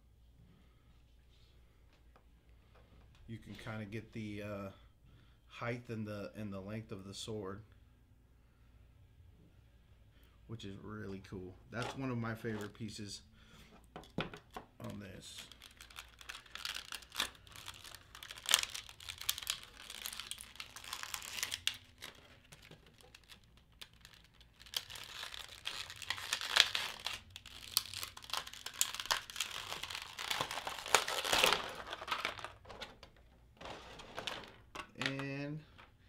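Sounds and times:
plastic packaging crinkling: 14.4 - 35.9.

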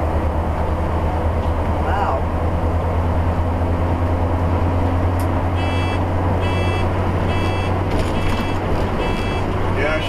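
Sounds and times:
diesel engine drone: 0.0 - 10.0
road noise: 0.0 - 10.0
short electronic beep: 5.6 - 9.5.

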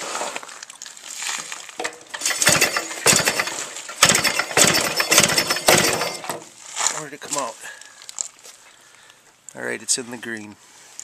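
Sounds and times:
engine kicked over without firing: 1.9 - 6.5.

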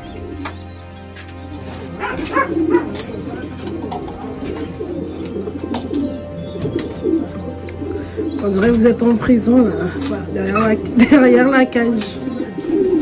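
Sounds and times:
pigeons cooing: 0.0 - 13.0.

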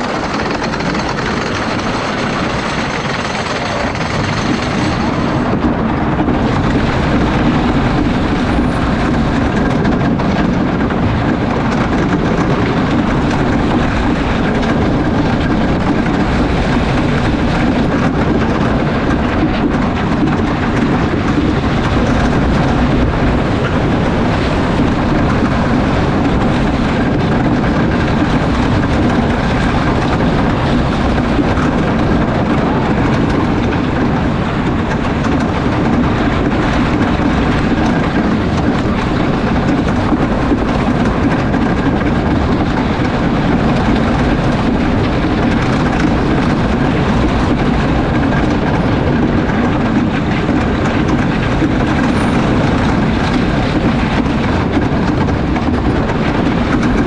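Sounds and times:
roller coaster wheels rumbling: 0.0 - 57.0.

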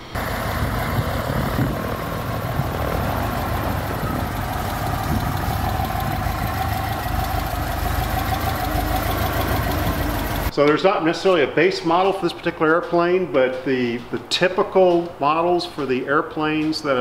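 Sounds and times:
aircraft engine and propeller running: 0.0 - 10.5.

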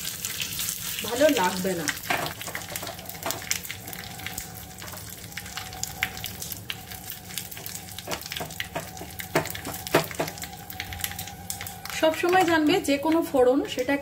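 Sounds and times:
leaves sizzling in hot oil: 0.0 - 14.0.

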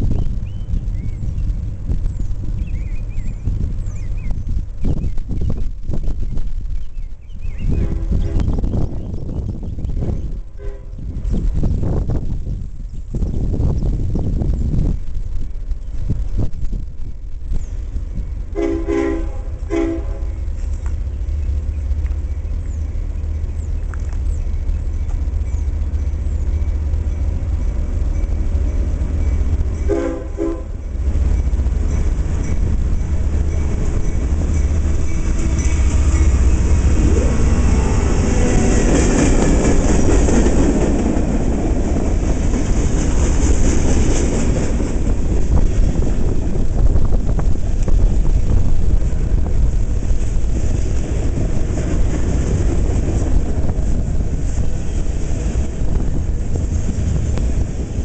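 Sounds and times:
freight car wheels rumbling on rails: 0.0 - 58.0
locomotives passing: 0.0 - 58.0
train horn blasts: 7.7 - 8.6, 10.4 - 11.1, 18.5 - 20.4, 29.8 - 31.0.

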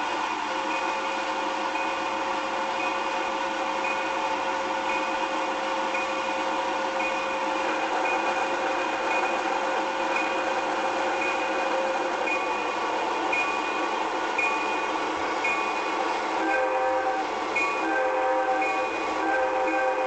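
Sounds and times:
faint pulsing high tone: 11.2 - 20.0.

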